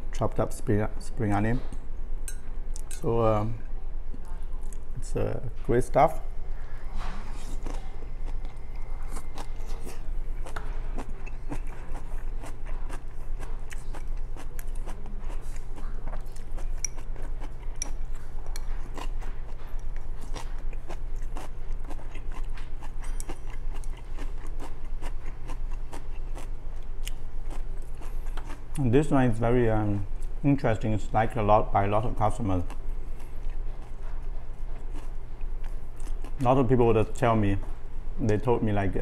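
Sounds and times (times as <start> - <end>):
steady low hum: 0.0 - 39.0
person chewing food: 6.5 - 28.8, 32.6 - 36.4.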